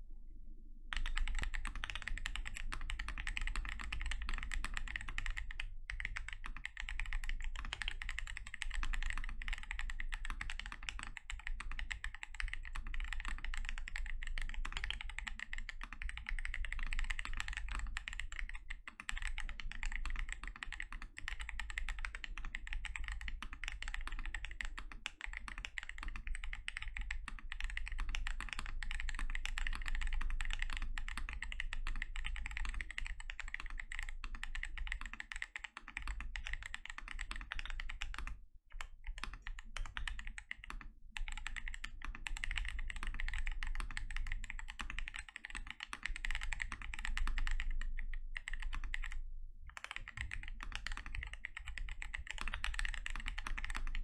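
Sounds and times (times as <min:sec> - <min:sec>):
mechanical keyboard typing: 0:00.9 - 0:54.0.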